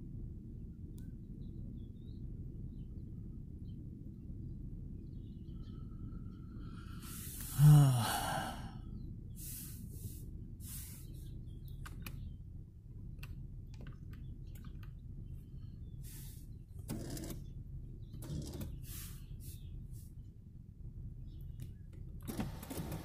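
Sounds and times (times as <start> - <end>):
person sighing: 7.1 - 8.8
light clicks and rustles: 11.6 - 12.4, 13.1 - 15.4.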